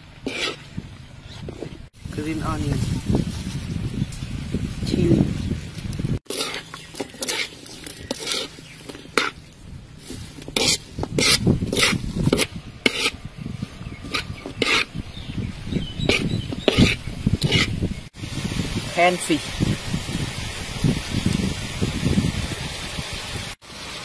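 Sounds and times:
metal spatula scraping a wok: 0.2 - 1.6, 6.3 - 13.2, 13.9 - 15.0, 16.0 - 17.8.

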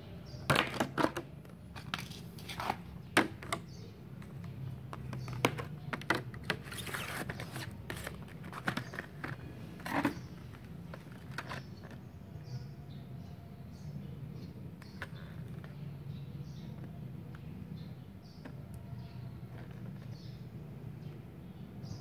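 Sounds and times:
crackling plastic rustle: 6.1 - 12.0.

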